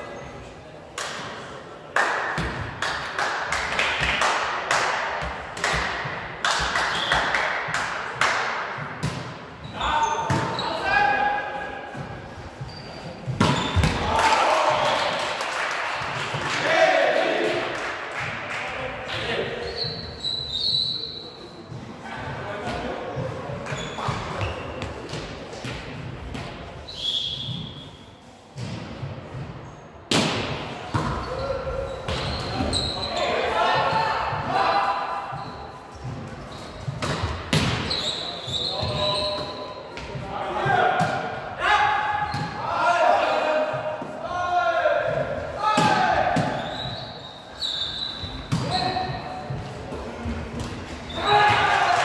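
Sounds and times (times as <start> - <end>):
sharp claps echoing: 0.9 - 8.8, 14.0 - 18.8
shoe squeak: 12.5 - 13.9, 19.6 - 21.6, 23.7 - 24.9, 26.9 - 28.1, 31.2 - 33.4, 35.3 - 37.0, 37.8 - 39.9, 46.6 - 49.5
volleyball hits: 13.2 - 14.4, 30.1 - 31.4, 36.9 - 38.0.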